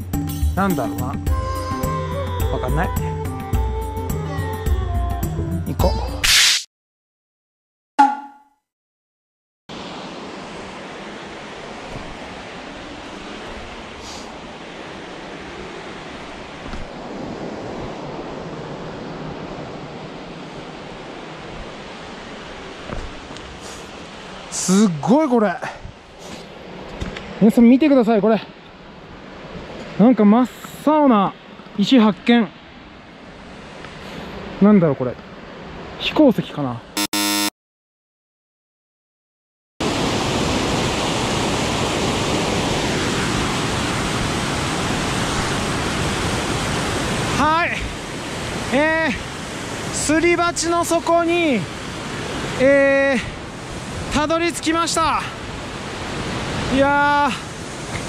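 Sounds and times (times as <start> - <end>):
water rushing over rocks: 9.7 - 33.0, 39.8 - 58.0
waterfall rushing: 39.8 - 58.0.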